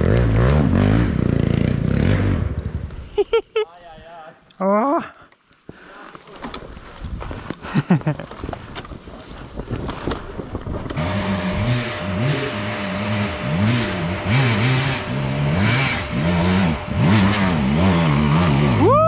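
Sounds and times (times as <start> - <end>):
two-stroke motorcycle engine revving: 0.0 - 2.8, 10.9 - 19.0.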